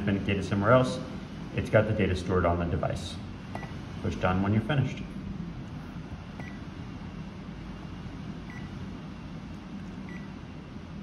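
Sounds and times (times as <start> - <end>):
low background hum: 0.0 - 11.0
short high key-press beeps: 6.4 - 6.6.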